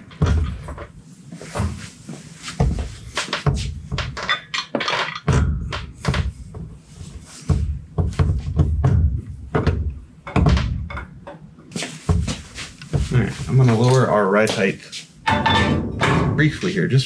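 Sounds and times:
heavy metal thunks and clunks: 0.0s - 1.0s, 2.6s - 6.8s, 7.5s - 11.5s, 15.2s - 16.7s.

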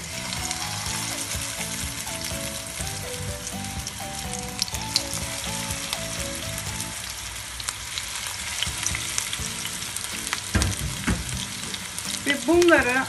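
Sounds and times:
burger patties sizzling in oil: 0.0s - 13.0s
dull knock: 10.5s - 11.6s.

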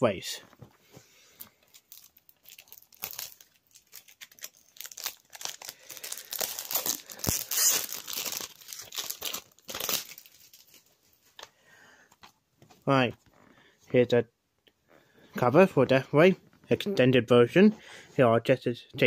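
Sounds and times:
plastic wrap crackling: 1.4s - 11.0s.

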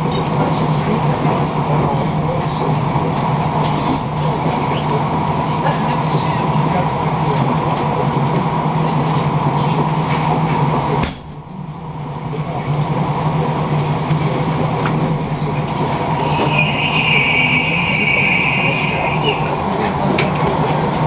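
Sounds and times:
train rumble inside carriage: 0.0s - 21.0s
high-pitched wheel squeal: 15.8s - 19.7s.

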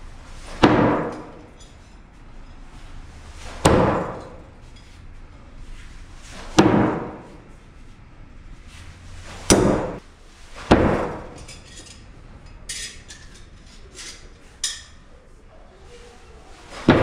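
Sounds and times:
knives striking wooden target: 0.5s - 1.6s, 3.4s - 4.4s, 6.4s - 7.4s, 9.3s - 10.0s, 10.6s - 11.4s.

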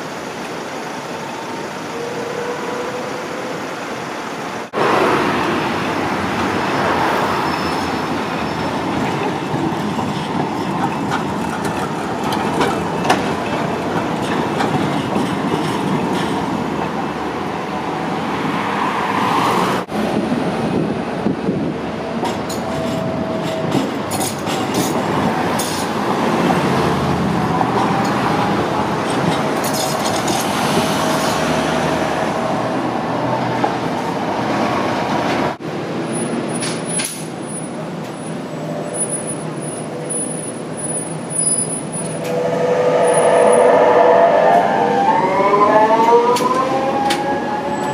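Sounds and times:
wheels squealing on rails: 1.0s - 4.2s, 6.5s - 13.2s, 22.1s - 26.0s, 27.5s - 32.6s, 36.1s - 47.9s
tram wheels clicking over rail joints: 8.3s - 17.1s, 22.1s - 32.1s, 35.0s - 38.2s.

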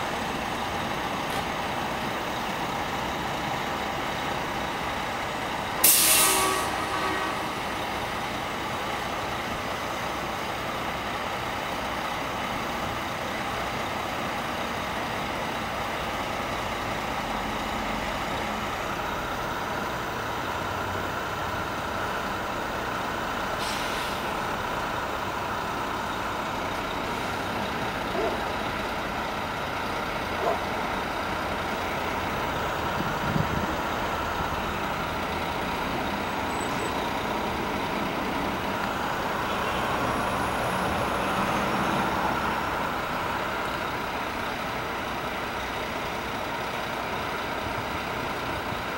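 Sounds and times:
diesel truck engine running: 0.0s - 48.9s
air brake hissing: 5.8s - 7.6s, 23.6s - 24.4s.

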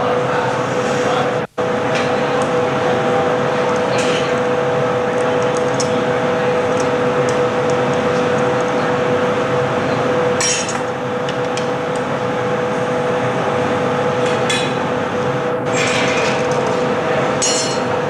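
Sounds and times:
furnace and blowers roaring: 0.0s - 18.0s
tools clinking on glass: 17.4s - 17.9s.

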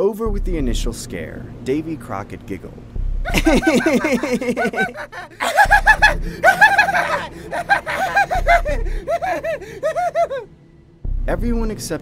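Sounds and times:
boys laughing and giggling: 3.3s - 10.5s.

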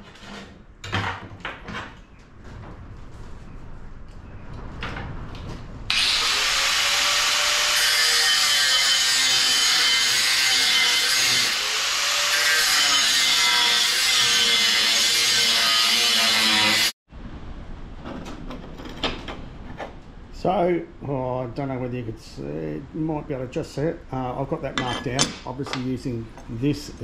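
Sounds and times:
angle grinder cutting steel: 5.9s - 17.0s.

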